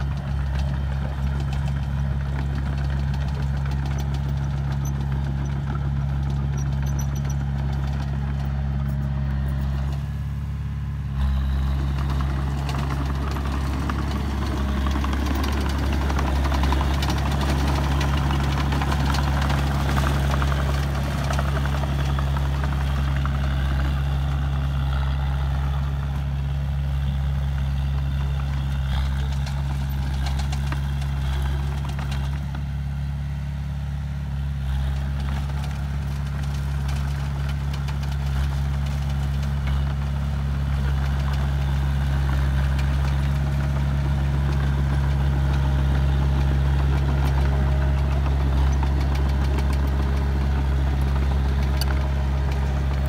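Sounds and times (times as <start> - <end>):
diesel engine running under load: 0.0 - 53.0.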